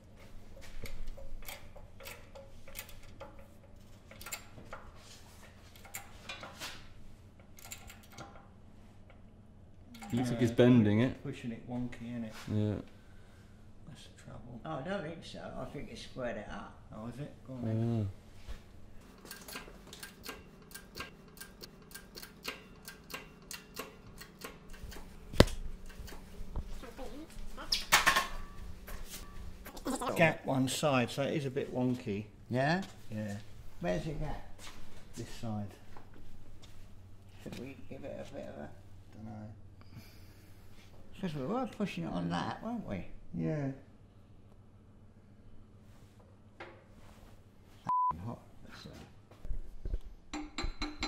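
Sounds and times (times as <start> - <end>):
metallic clicks and knocks: 0.8 - 4.9
shop press ticking: 19.2 - 25.1.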